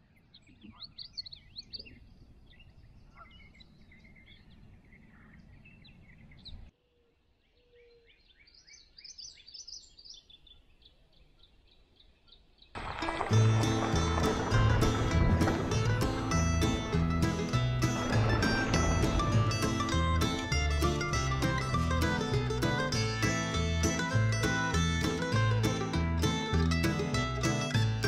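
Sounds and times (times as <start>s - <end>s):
songbirds chirping and trilling: 0.0s - 23.2s
low steady background rumble: 13.3s - 25.6s.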